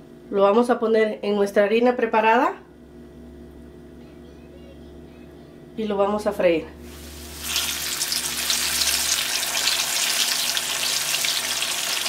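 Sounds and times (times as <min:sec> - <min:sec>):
fish frying in hot oil: 0:06.9 - 0:12.0.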